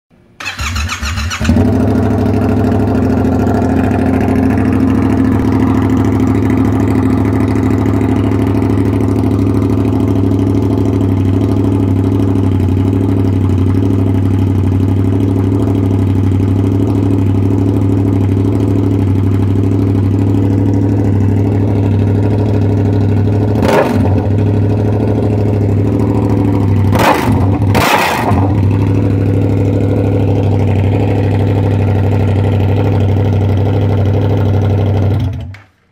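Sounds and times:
motorcycle engine idling: 0.4 - 35.7.

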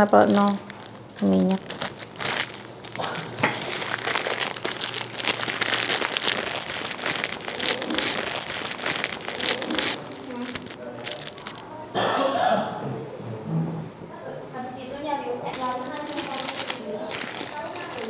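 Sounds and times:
plastic wrapper crinkling: 0.0 - 11.8, 15.5 - 18.0.

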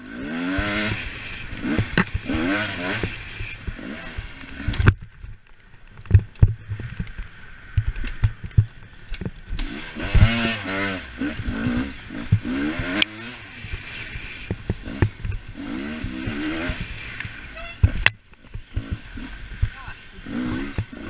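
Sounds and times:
dirt bike engine revving: 0.0 - 5.1, 9.5 - 21.0.

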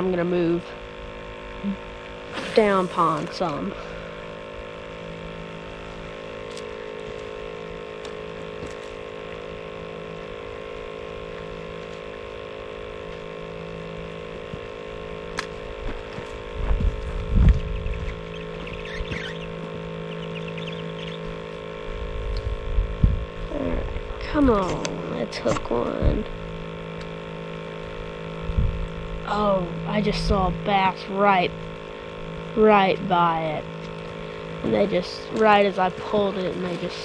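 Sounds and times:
steady multi-tone hum: 0.0 - 37.0
low rumbles: 14.2 - 37.0.

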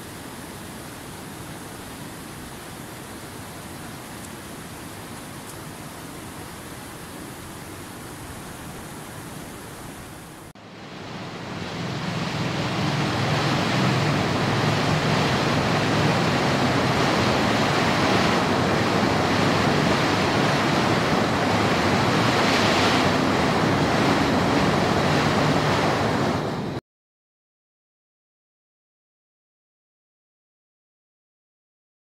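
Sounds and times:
water rushing over rocks: 11.8 - 26.3.

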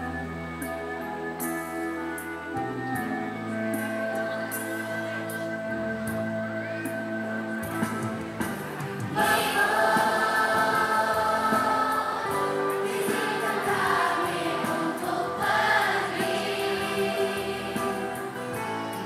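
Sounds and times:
instrumental accompaniment: 0.0 - 19.0
children's choir singing: 9.0 - 19.0.

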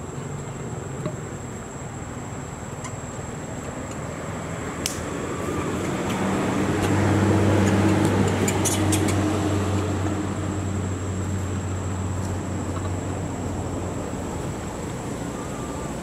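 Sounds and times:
insect whine: 0.0 - 16.0
motor engine passing: 4.1 - 12.6.

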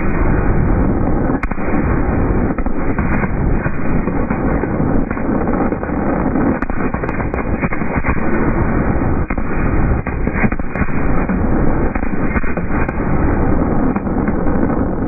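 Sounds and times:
fireworks cracks: 0.0 - 15.0
fireworks rumble: 0.0 - 15.0.

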